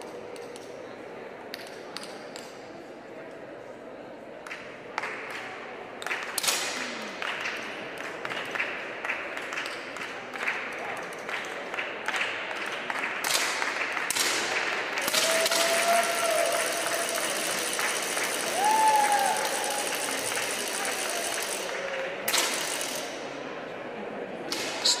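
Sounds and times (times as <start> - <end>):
crowd hubbub: 0.0 - 25.0
applause: 7.1 - 23.0.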